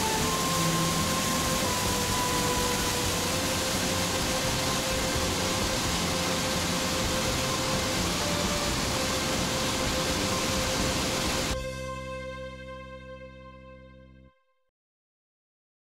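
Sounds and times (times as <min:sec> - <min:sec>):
waterfall rushing: 0:00.0 - 0:11.6.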